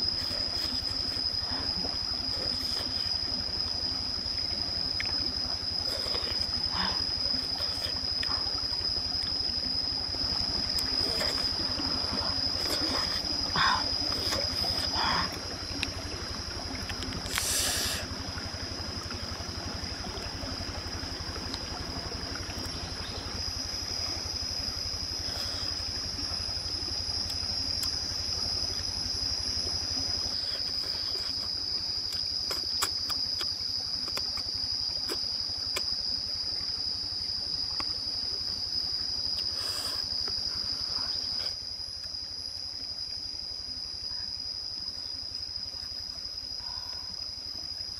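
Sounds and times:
insects droning: 0.0 - 47.9
chewing clicks: 32.1 - 35.9.

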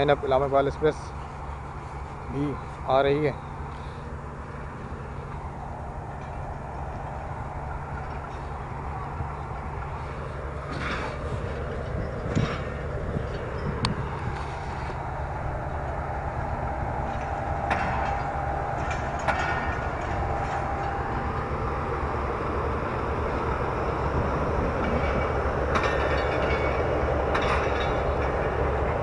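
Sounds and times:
train wheels rumbling on rails: 0.0 - 29.0
sharp wheel clack: 23.9 - 29.0.

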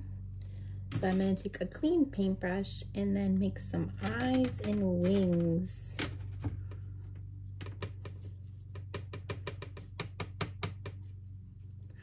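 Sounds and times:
paintbrush tapping on plastic palette: 7.5 - 11.1.

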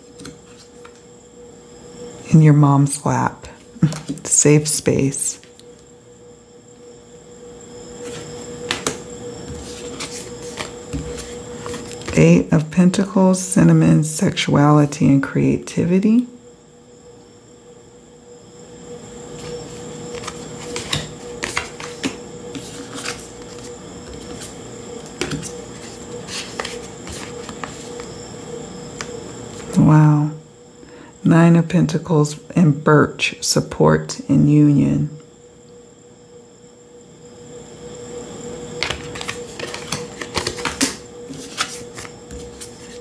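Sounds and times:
faint steady hum: 0.0 - 43.0
cards clicking and tapping on table: 20.2 - 22.2, 38.8 - 42.4.

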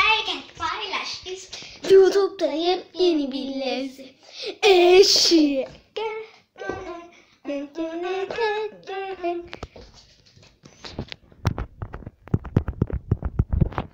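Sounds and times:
child singing: 0.0 - 9.7.

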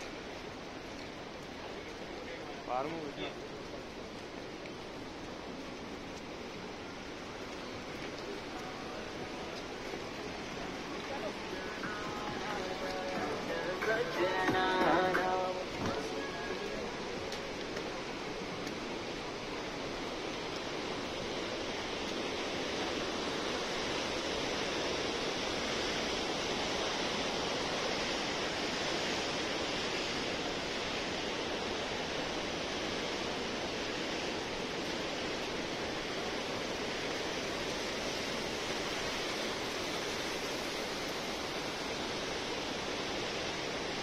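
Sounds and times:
mountain water rushing: 0.0 - 44.0.

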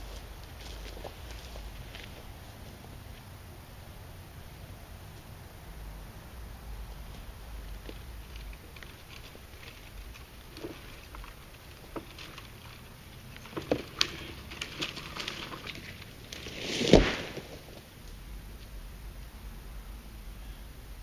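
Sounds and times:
rush through brush: 6.9 - 18.0
wood cracking: 7.0 - 18.2
twigs snapping: 7.1 - 18.2
tree falling heavy thud: 7.7 - 17.8.

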